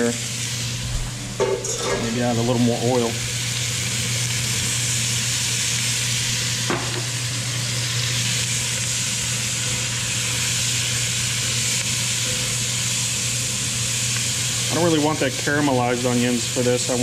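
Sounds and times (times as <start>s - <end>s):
vegetables sizzling in oil: 0.0s - 17.0s
low hum: 0.6s - 3.3s.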